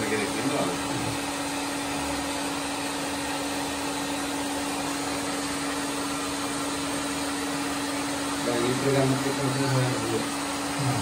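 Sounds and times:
pump whirring hum: 0.0s - 11.0s.

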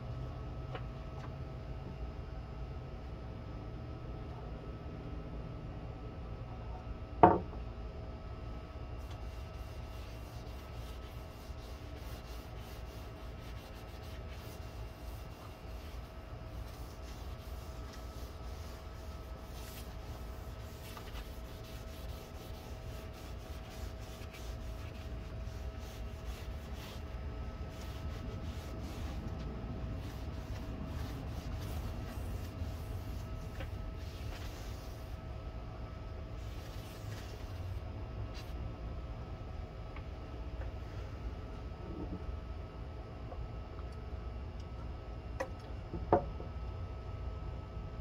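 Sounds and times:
steady background hum: 0.0s - 48.0s
cloth scrubbing wood: 9.0s - 35.2s.

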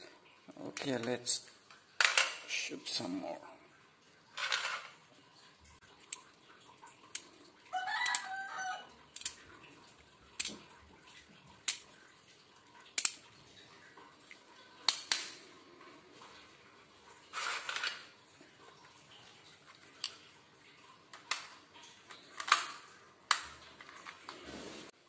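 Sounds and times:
rooster crowing: 7.7s - 8.9s.

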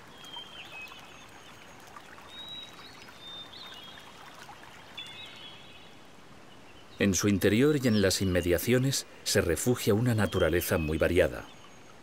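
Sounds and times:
water trickling: 0.0s - 6.1s, 9.7s - 12.0s.

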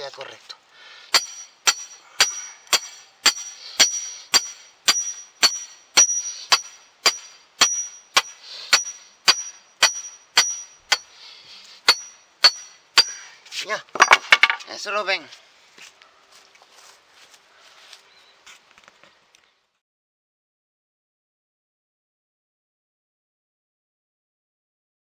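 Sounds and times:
hammer clanging on iron stake: 1.1s - 11.1s, 11.8s - 13.3s, 13.9s - 14.7s.

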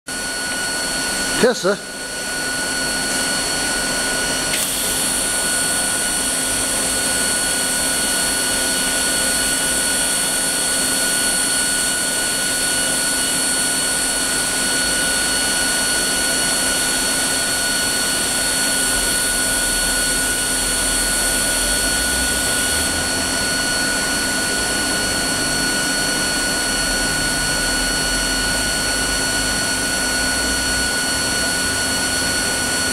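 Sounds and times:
welding arc hiss: 4.4s - 10.4s.

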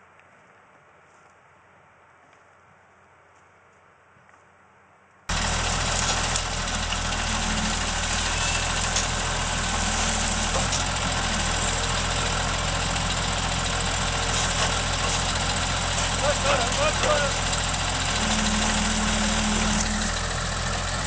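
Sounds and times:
tractor diesel engine running: 5.3s - 21.0s.

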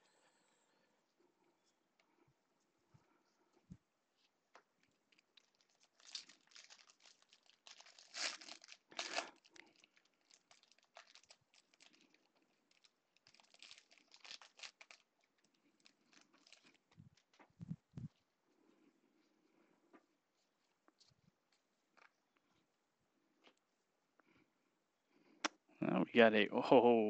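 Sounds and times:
foil wrappers crinkling and tearing: 5.1s - 17.4s.

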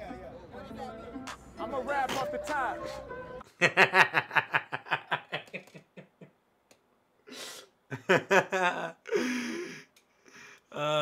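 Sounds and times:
man laughing hard: 3.5s - 6.2s, 7.9s - 9.7s.

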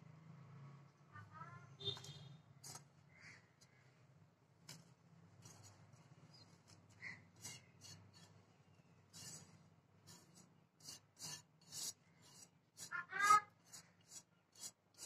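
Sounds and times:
faint clicks and scrapes: 1.8s - 15.0s.

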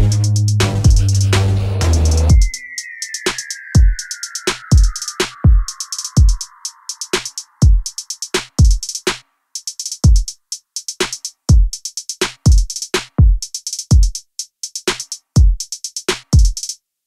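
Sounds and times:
drum machine kick drums: 0.0s - 2.6s, 3.3s - 16.8s
rapid hi-hat ticks: 0.0s - 16.8s.

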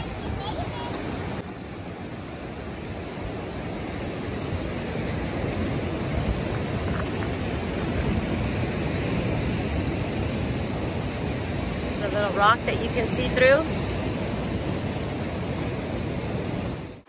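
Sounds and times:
surf breaking on rocks: 0.0s - 17.0s.

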